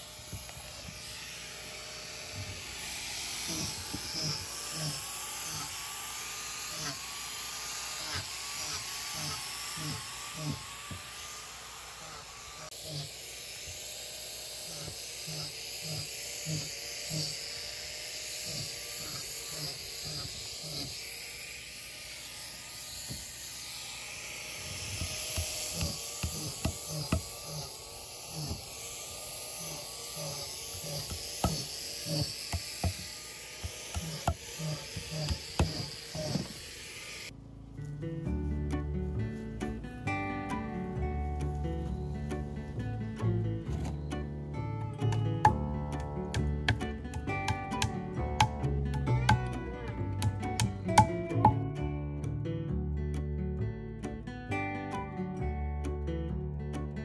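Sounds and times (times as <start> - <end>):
hammer tapping dowels into log: 25.0 - 27.6, 30.8 - 36.5, 45.0 - 51.8.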